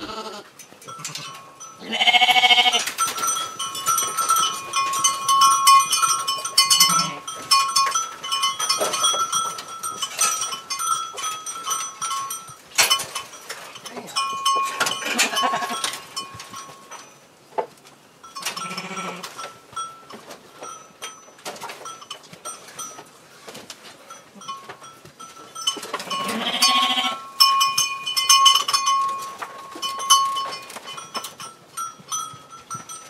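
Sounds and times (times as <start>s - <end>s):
sheep bleating: 0.0s - 2.9s, 15.1s - 15.9s, 26.1s - 27.2s.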